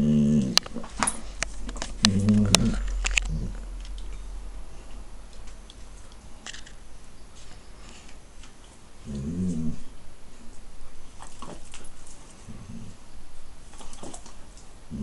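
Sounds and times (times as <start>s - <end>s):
dog growling: 0.0s - 0.9s, 1.6s - 4.3s, 9.0s - 9.9s
dogs scuffling with clicks: 11.2s - 12.5s, 13.7s - 14.7s.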